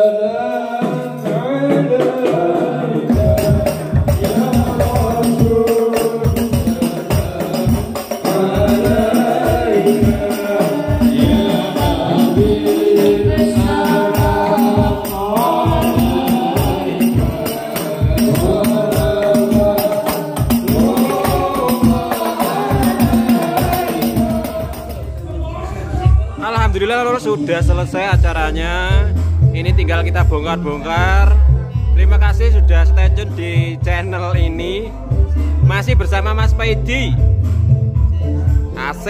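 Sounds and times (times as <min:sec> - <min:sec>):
group singing devotional song: 0:00.0 - 0:28.0
steady drum beat: 0:01.4 - 0:31.3.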